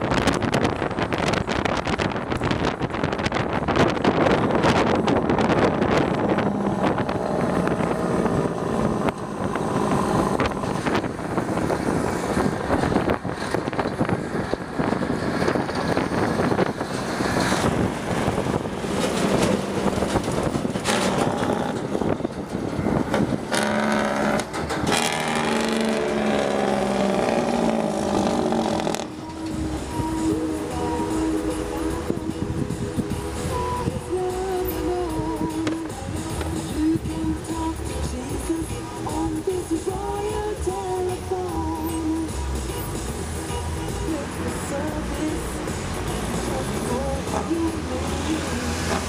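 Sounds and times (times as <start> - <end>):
wind buffeting: 0.0 - 37.4
road noise: 0.0 - 49.0
truck diesel engine under load: 0.0 - 49.0.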